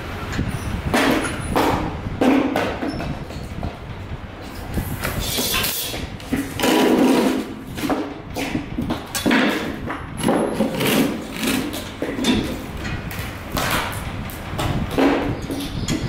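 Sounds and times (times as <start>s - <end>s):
knocks and thuds on plywood: 0.9s - 3.8s.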